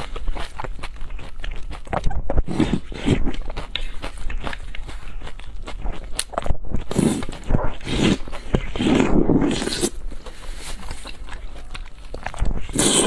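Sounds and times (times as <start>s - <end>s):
chewing: 0.0s - 13.0s
slurping noodles: 2.4s - 4.2s, 6.8s - 11.6s, 12.4s - 13.0s.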